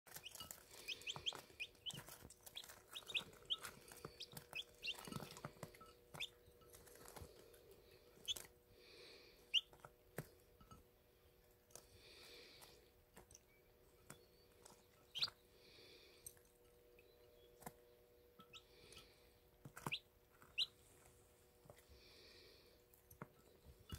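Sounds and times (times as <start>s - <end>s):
chicks peeping: 0.1s - 10.3s, 14.0s - 15.8s, 16.9s - 20.9s
faint steady hum: 0.1s - 23.9s.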